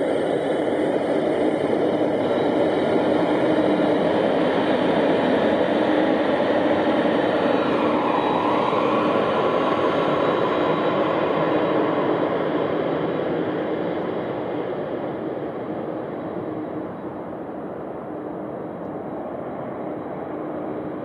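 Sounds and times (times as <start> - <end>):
jet engines whining: 0.0 - 21.0.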